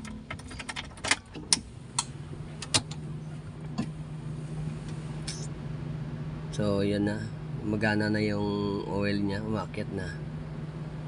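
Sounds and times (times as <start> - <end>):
car keys jangling: 0.0 - 1.4
ignition switch clicking: 0.0 - 3.0
low steady hum: 0.0 - 11.0.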